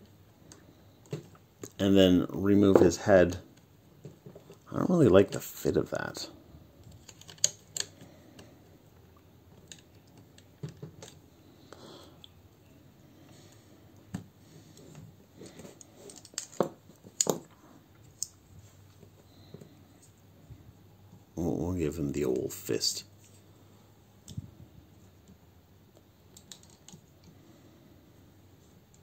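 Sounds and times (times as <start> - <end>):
plastic toy parts clicking: 6.9 - 8.0, 16.0 - 17.4.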